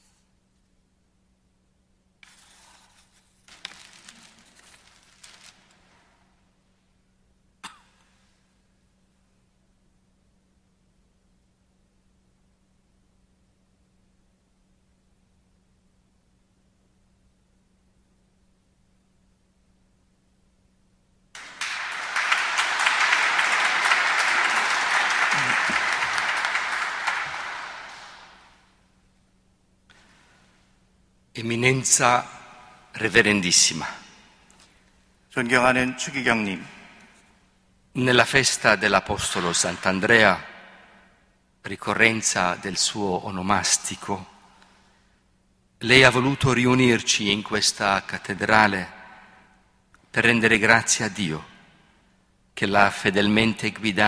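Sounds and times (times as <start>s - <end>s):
low electrical hum: 0.0s - 54.0s
faint rustling and handling noise: 2.2s - 7.0s, 29.2s - 31.1s
crowd applauding: 21.4s - 28.6s.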